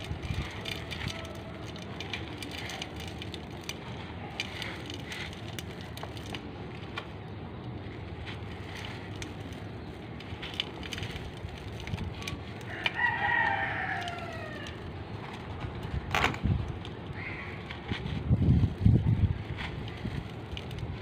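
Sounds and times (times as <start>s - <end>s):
charcoal crunching in a bowl: 0.0s - 21.0s
rooster crowing: 12.7s - 14.8s.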